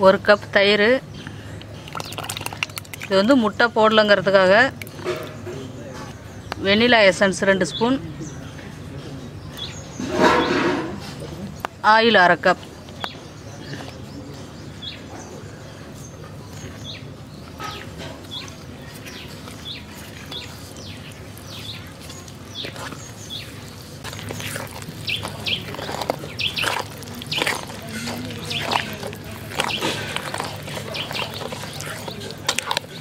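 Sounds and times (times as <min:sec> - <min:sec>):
small bird chirping: 0:16.0 - 0:32.2.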